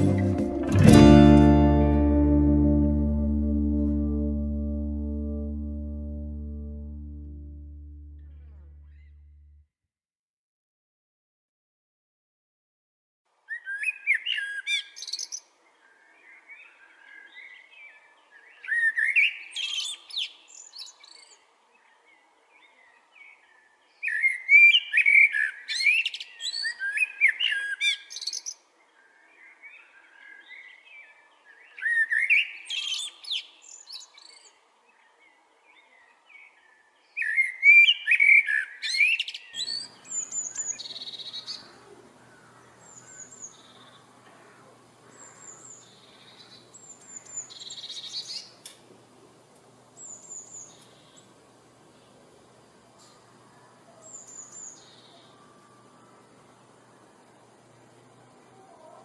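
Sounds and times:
blackbird singing: 0:13.5 - 0:21.4, 0:24.0 - 0:28.6, 0:29.4 - 0:34.5, 0:37.1 - 0:48.6, 0:54.0 - 0:55.7.

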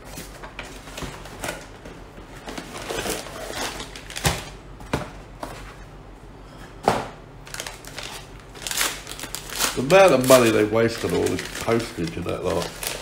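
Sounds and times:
cardboard and paper rustling: 0:00.0 - 0:04.5, 0:07.5 - 0:13.0.

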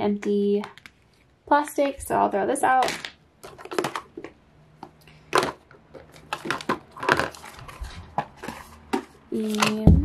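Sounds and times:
plastic bottles knocking together: 0:02.8 - 0:10.0.

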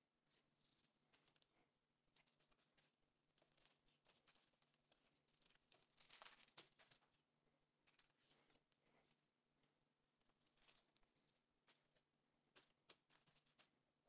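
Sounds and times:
string rustling and scratching on dough: 0:00.1 - 0:13.9.

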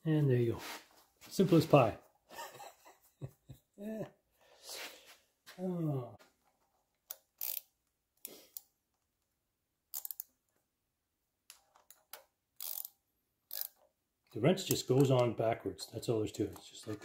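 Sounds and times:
ratcheting wrench clicking: 0:07.1 - 0:07.8, 0:09.9 - 0:10.4, 0:11.5 - 0:13.9.

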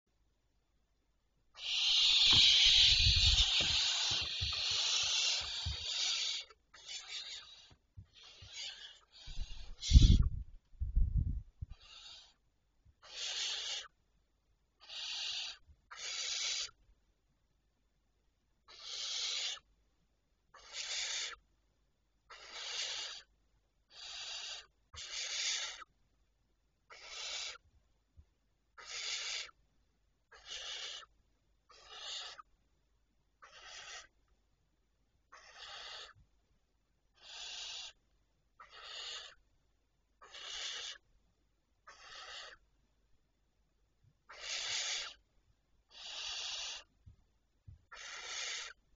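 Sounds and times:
owl chicks rasping hissing calls: 0:01.5 - 0:10.4, 0:11.6 - 0:12.4, 0:13.0 - 0:14.0, 0:14.8 - 0:16.8, 0:18.7 - 0:19.7, 0:20.5 - 0:21.4, 0:22.3 - 0:25.9, 0:26.9 - 0:27.7, 0:28.8 - 0:29.6, 0:30.3 - 0:32.5, 0:33.4 - 0:34.2, 0:35.3 - 0:36.2, 0:37.1 - 0:38.0, 0:38.6 - 0:39.4, 0:40.2 - 0:41.1, 0:41.8 - 0:42.6, 0:44.2 - 0:47.0, 0:47.9 - 0:48.9.

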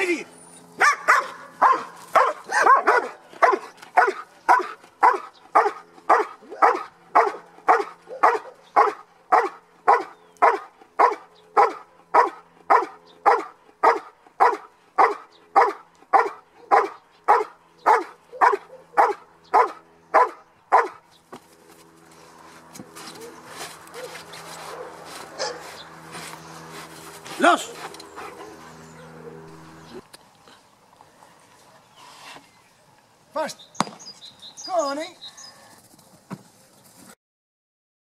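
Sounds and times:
dog barking rhythmically: 0:00.8 - 0:21.0, 0:24.0 - 0:25.6.

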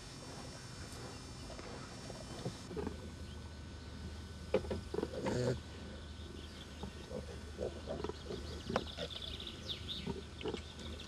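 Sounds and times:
low steady hum: 0:00.0 - 0:11.0
piglets grunting softly: 0:04.9 - 0:05.7.

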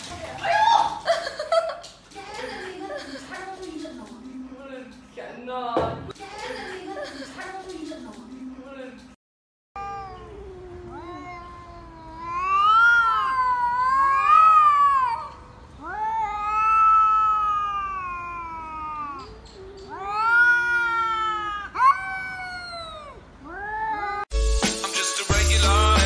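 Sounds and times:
cats yowling: 0:09.8 - 0:24.3.

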